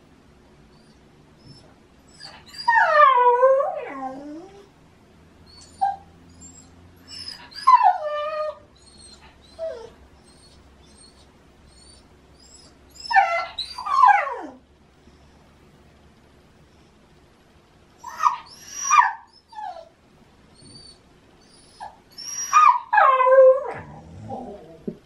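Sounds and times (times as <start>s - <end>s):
dog whining and yowling: 0.7s - 4.7s, 5.4s - 14.6s, 18.0s - 20.0s, 20.6s - 25.0s
dog yelping: 0.8s - 4.6s, 5.5s - 14.6s, 18.0s - 20.0s, 20.6s - 24.6s.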